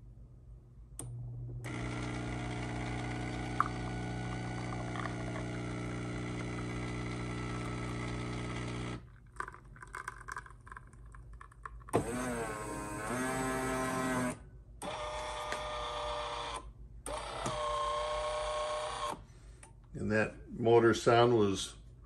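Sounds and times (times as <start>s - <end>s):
espresso machine pump buzzing: 1.1s - 9.1s, 11.9s - 19.2s.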